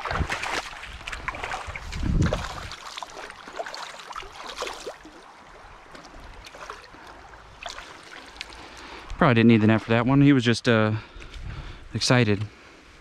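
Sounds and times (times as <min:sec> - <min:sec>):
fish splashing in water: 0:00.0 - 0:08.8
water dripping: 0:00.0 - 0:09.2.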